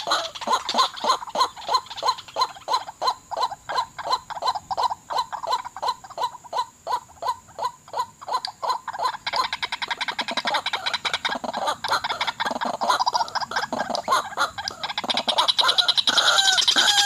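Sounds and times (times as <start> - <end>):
waterhens calling: 0.0 - 17.0.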